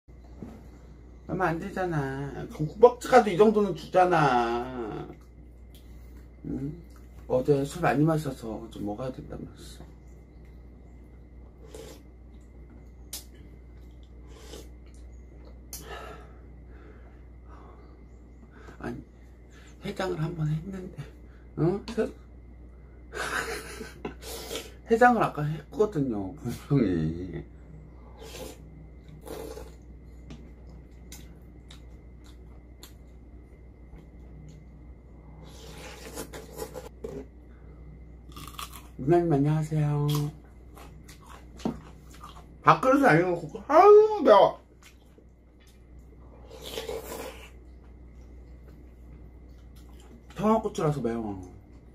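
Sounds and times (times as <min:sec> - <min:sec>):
breathing: 0:15.8 - 0:18.8.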